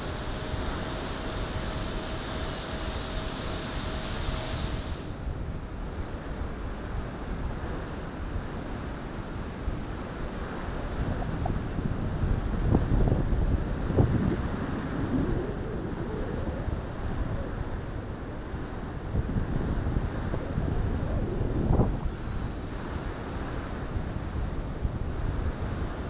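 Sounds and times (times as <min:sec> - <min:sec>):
high whine of electric fans: 0:00.0 - 0:26.0
wind rumbling on microphone: 0:06.8 - 0:26.0.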